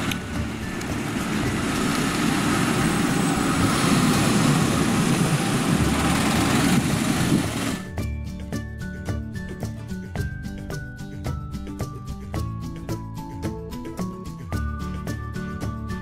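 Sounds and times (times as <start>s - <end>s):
minibus driving past: 0.0s - 7.9s.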